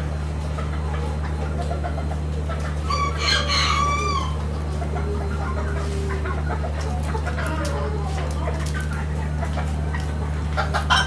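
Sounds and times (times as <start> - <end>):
steady low hum: 0.0 - 11.0
rooster crowing: 2.9 - 4.4.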